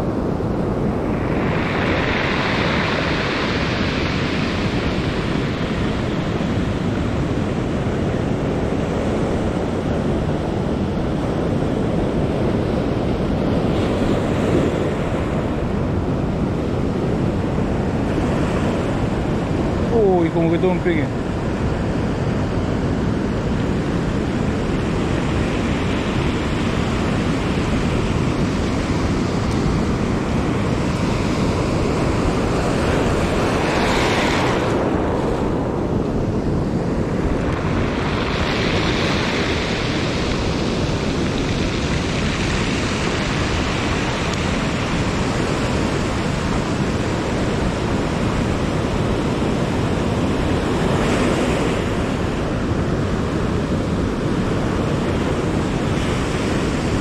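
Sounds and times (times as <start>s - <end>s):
wind rumbling on microphone: 0.0s - 57.0s
surf breaking on gravel beach: 37.2s - 47.7s.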